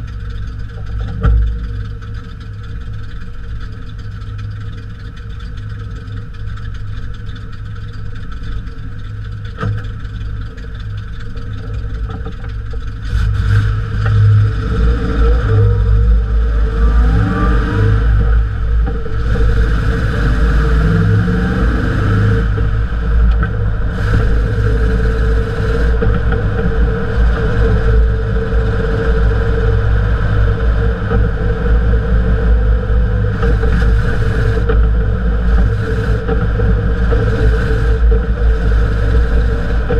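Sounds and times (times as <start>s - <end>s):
road and drivetrain rumble: 0.0s - 39.9s
vehicle engine revving: 9.5s - 39.9s.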